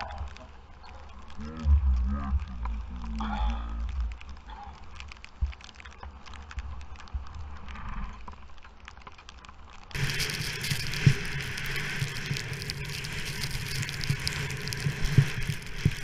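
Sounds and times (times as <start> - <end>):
clicks and crackles: 0.0 - 16.0
skis scraping over snow: 9.9 - 16.0
wind rush: 10.0 - 16.0.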